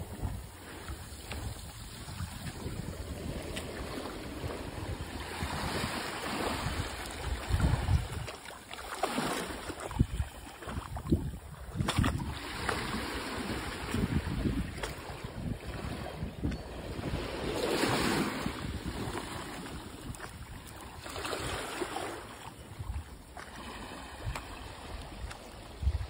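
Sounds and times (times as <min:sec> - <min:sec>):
wind on microphone: 0:00.0 - 0:08.5, 0:09.1 - 0:26.0
small waves lapping on shore: 0:00.0 - 0:26.0.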